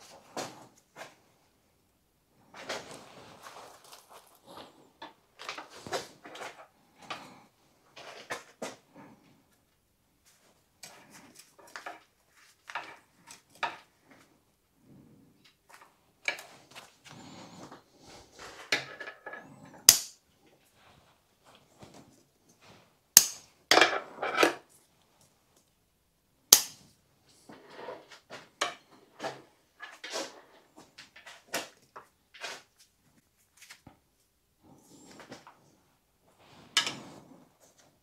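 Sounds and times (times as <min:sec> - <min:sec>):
scraping and rustling: 0:02.4 - 0:09.4, 0:10.2 - 0:22.9, 0:27.3 - 0:34.0, 0:34.6 - 0:38.0
sharp snaps of tools: 0:19.9 - 0:20.2, 0:23.2 - 0:23.5, 0:26.5 - 0:26.8.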